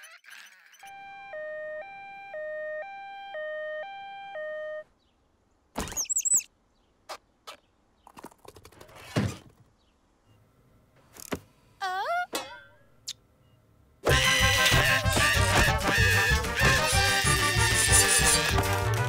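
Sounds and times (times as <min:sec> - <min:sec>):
two-tone siren: 0:00.8 - 0:04.9.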